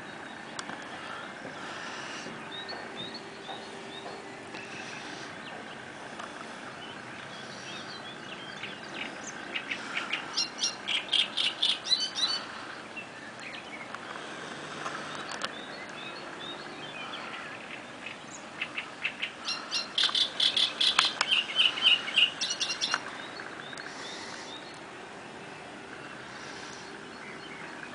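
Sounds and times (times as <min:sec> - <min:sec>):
songbird singing: 0:00.0 - 0:27.9
steady background hush: 0:00.0 - 0:27.9.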